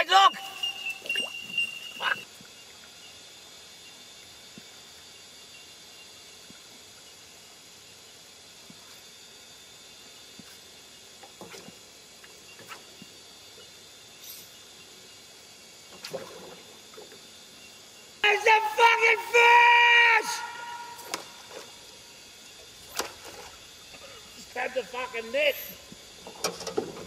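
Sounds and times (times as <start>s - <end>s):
loud sustained pitched sound: 18.4s - 21.7s.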